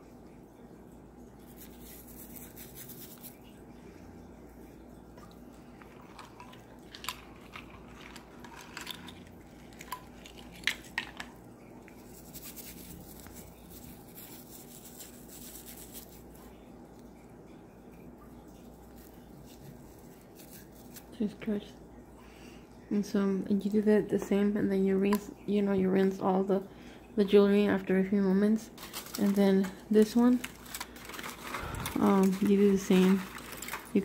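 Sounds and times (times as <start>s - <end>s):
wet rubbing of soapy hands: 1.4s - 3.5s, 5.3s - 16.6s, 18.4s - 21.5s, 28.6s - 34.0s.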